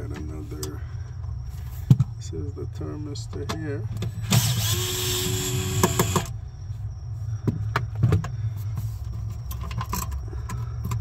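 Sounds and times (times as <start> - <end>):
cordless screwdriver running: 4.3 - 6.3.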